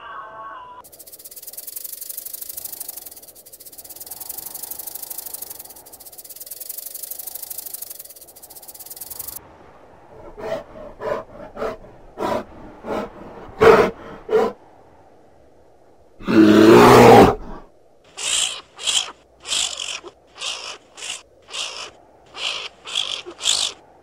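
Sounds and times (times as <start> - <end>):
snake hissing: 0.8 - 9.4, 18.1 - 23.8
bear calling: 18.1 - 23.9.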